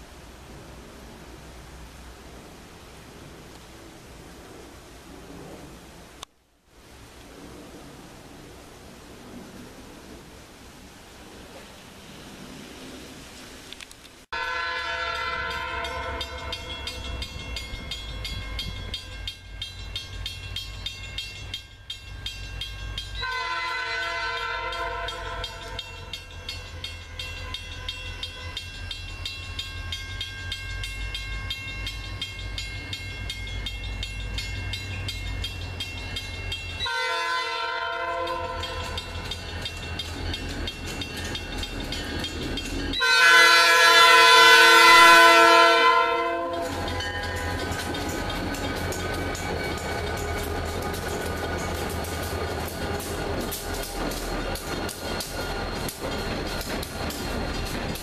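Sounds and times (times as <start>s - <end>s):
locomotive air horn: 14.3s - 16.7s, 23.2s - 26.1s, 36.8s - 39.1s, 43.0s - 46.9s
diesel locomotive rumble: 14.9s - 58.0s.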